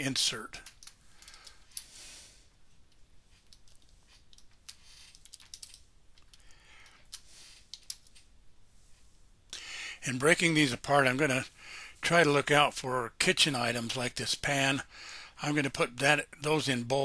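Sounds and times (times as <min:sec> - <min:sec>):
soft hisses: 0:00.1 - 0:12.4
computer keyboard keystrokes: 0:05.1 - 0:06.4.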